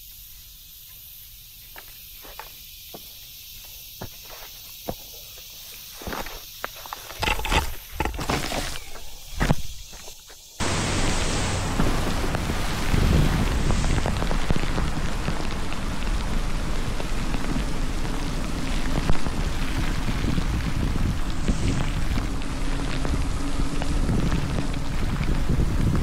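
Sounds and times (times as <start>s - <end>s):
rain spattering on camera: 10.6s - 26.0s.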